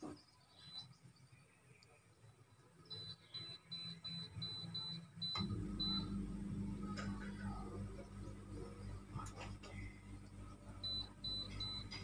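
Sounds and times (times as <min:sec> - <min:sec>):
air conditioner low hum: 0:02.9 - 0:12.0.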